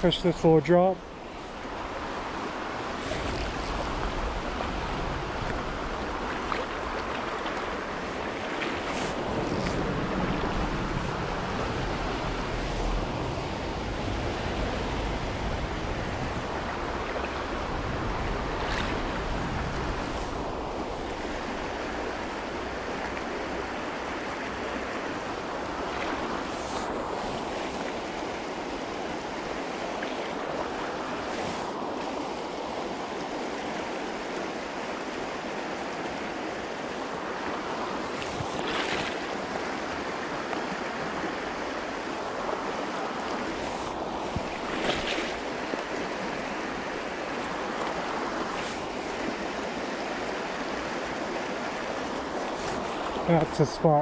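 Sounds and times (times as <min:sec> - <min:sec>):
stream rushing over rocks: 0:00.0 - 0:54.0
wind buffeting microphone: 0:01.4 - 0:23.7, 0:42.2 - 0:45.6.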